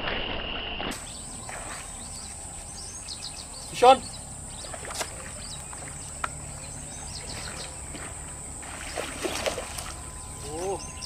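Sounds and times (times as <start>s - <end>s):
bird chirps: 1.0s - 11.0s
high-pitched insect drone: 8.3s - 11.0s.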